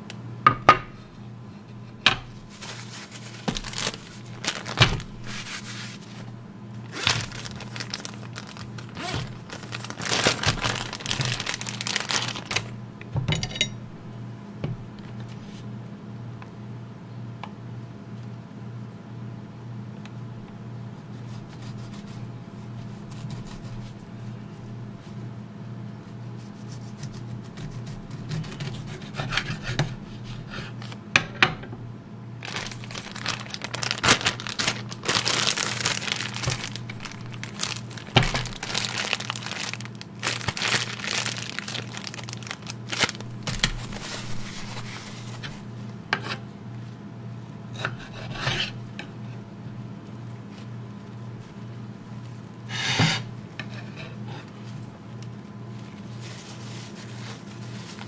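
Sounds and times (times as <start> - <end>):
steady low hum: 0.0 - 58.0
food wrapping crinkling: 2.4 - 12.8, 32.4 - 45.8, 54.6 - 58.0.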